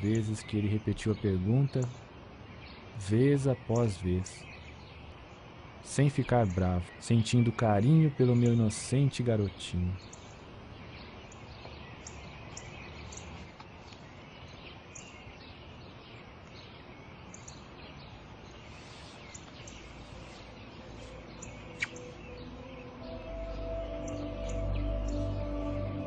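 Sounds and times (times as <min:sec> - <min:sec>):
outdoor hiss: 0:00.0 - 0:26.0
small birds chirping: 0:00.0 - 0:26.0
soft background music: 0:19.8 - 0:26.0.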